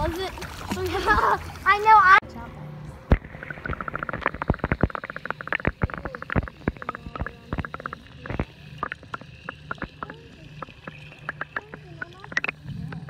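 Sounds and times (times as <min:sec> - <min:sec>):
underwater bubbles gurgling: 0:03.1 - 0:13.0.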